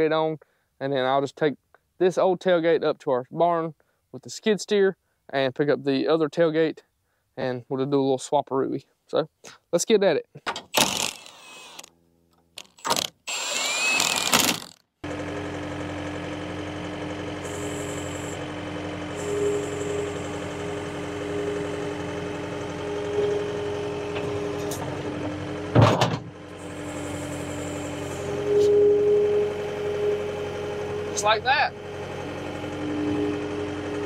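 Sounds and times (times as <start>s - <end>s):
brief rising whir: 12.8s - 14.8s, 26.6s - 34.0s
engine idling: 15.0s - 34.0s.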